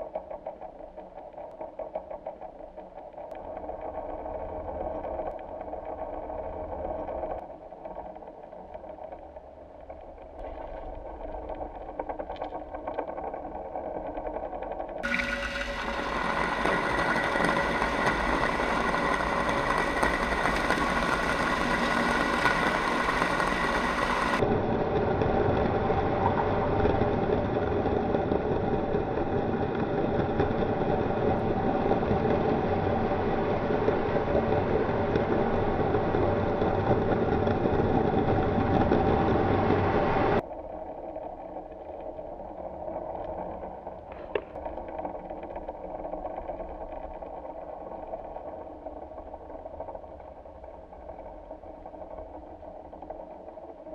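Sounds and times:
mechanical motor hum: 15.0s - 40.4s.

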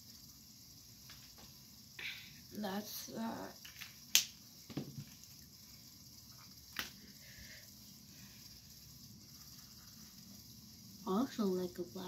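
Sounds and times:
faint room hiss: 0.0s - 12.0s
marker caps clicking: 3.6s - 4.8s.

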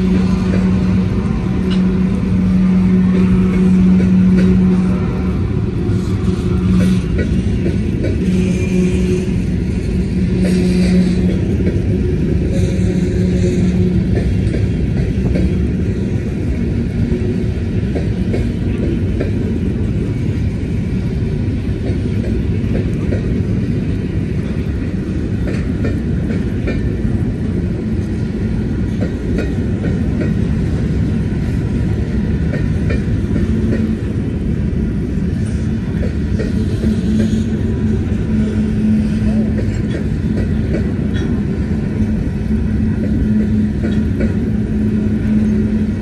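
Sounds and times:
train wheels rumbling on rail: 0.0s - 46.0s.

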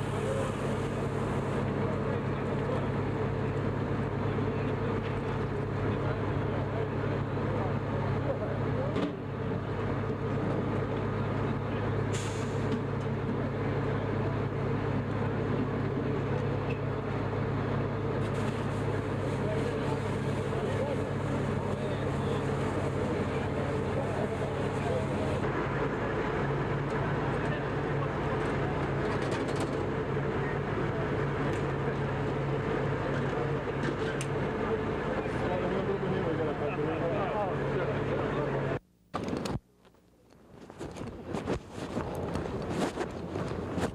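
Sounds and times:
fire hose spraying water: 0.0s - 4.2s, 12.1s - 12.7s, 18.0s - 26.4s
diesel engine drone: 0.0s - 43.9s
outdoor noise: 0.0s - 43.9s
short sharp hiss: 12.1s - 12.7s.

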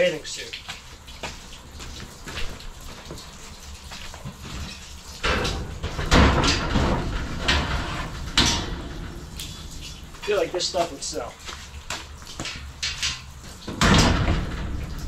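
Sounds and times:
footsteps: 0.6s - 6.1s, 6.7s - 13.6s
objects clattering in metal unit: 4.5s - 10.8s, 12.8s - 15.0s.

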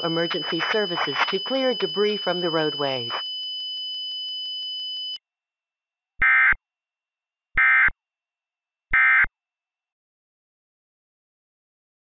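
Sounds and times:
digital data bursts: 0.0s - 3.2s
steady high electronic tone: 0.0s - 3.2s.

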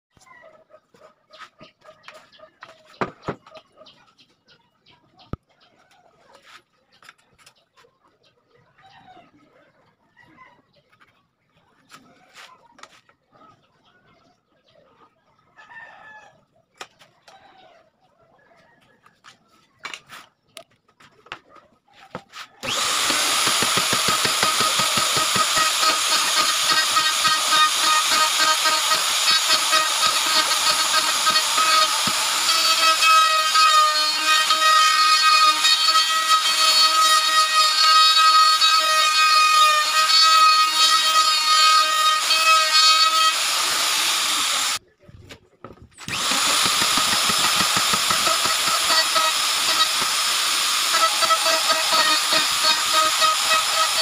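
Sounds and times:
router whining cutting wood: 22.6s - 44.8s, 46.0s - 54.0s.

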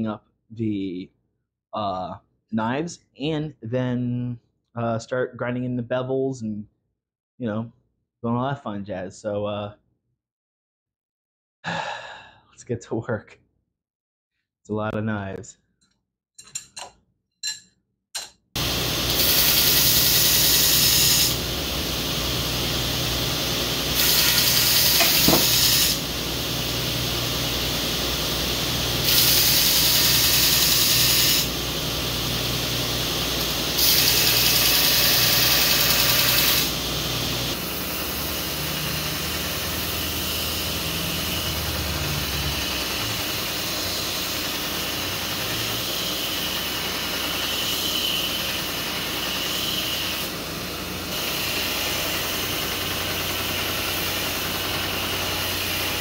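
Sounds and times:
metal grinding hiss: 18.6s - 50.3s
belt grinder motor hum: 18.6s - 56.0s.

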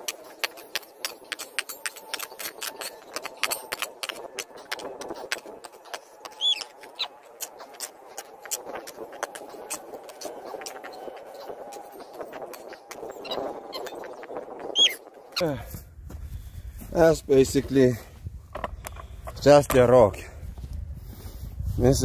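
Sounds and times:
digging tool scraping stony ground: 0.0s - 14.9s
short high squeak: 14.7s - 15.0s.

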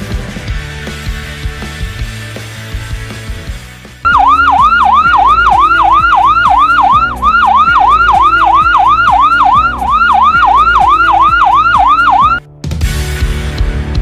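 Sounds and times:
ambulance siren: 4.1s - 12.4s.

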